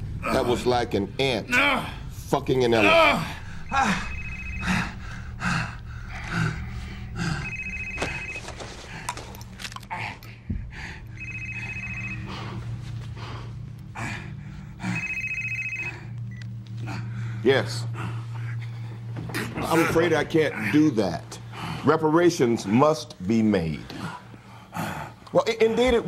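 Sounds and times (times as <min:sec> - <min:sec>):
phone ringing: 0:03.6 - 0:05.0, 0:07.3 - 0:09.1, 0:11.2 - 0:12.6, 0:14.8 - 0:16.4.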